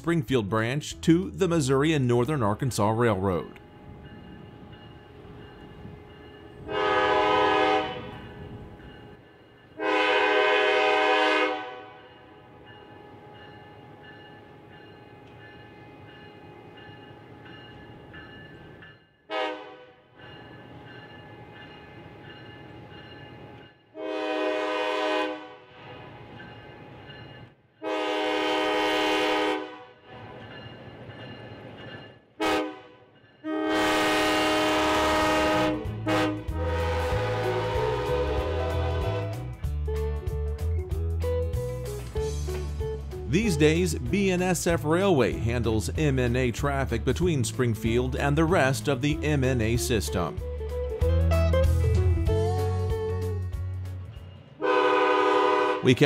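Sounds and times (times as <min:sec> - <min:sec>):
locomotive air horn blasts: 0:06.7 - 0:08.3, 0:09.8 - 0:12.0, 0:19.3 - 0:20.0, 0:24.0 - 0:25.8, 0:27.8 - 0:30.0, 0:32.4 - 0:39.4, 0:54.6 - 0:56.0
diesel locomotive engine running: 0:33.8 - 0:40.2.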